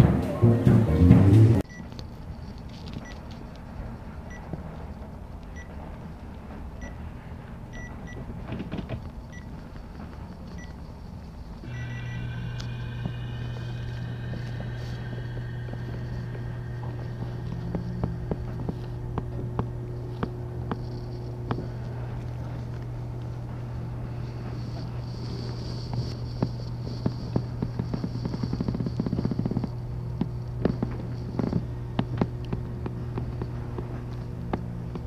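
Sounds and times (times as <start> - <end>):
massage chair motor hum: 1.6 - 35.0
faint high whine: 9.2 - 35.0.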